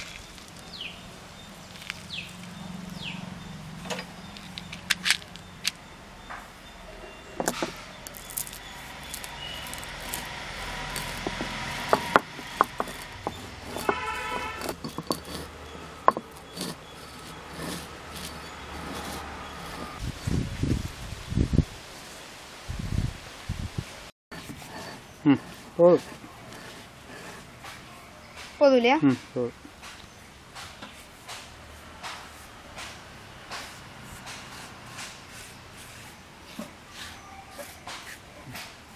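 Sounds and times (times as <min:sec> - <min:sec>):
peppercorns cracking under stone roller: 0:00.0 - 0:00.9, 0:01.6 - 0:02.6, 0:07.4 - 0:20.0
stone scraping on stone: 0:07.4 - 0:20.0, 0:24.3 - 0:27.9, 0:33.5 - 0:38.7.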